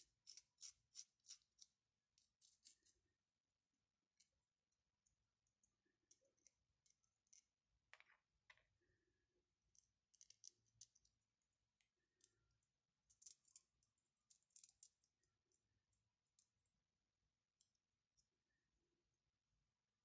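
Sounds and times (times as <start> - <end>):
plastic parts clicking and rattling: 0.0 - 3.0.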